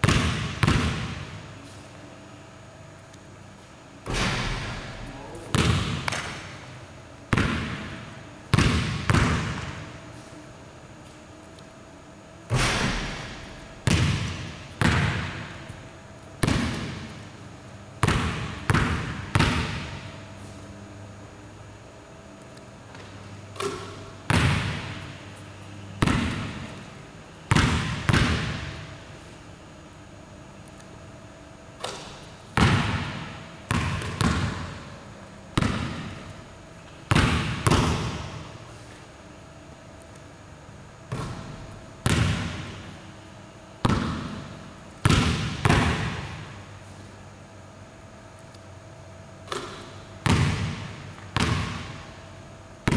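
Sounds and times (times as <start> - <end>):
basketball bouncing on hardwood floor: 0.0 - 1.3, 5.5 - 6.4, 7.3 - 9.8, 12.6 - 15.6, 16.4 - 17.1, 18.0 - 20.1, 22.9 - 25.0, 27.5 - 28.8, 31.8 - 34.8, 35.6 - 36.2, 37.1 - 38.5, 41.1 - 42.8, 43.8 - 46.5, 49.5 - 52.0.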